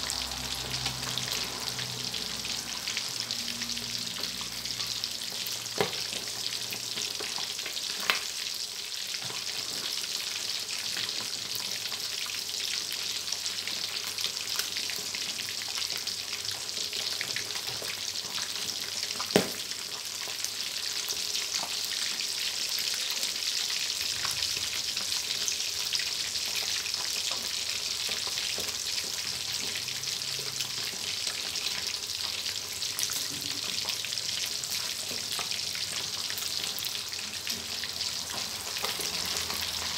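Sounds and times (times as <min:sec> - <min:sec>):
oil popping and crackling: 0:00.0 - 0:08.5, 0:14.0 - 0:20.5, 0:24.1 - 0:39.9
fish sizzling in hot oil: 0:00.0 - 0:39.9.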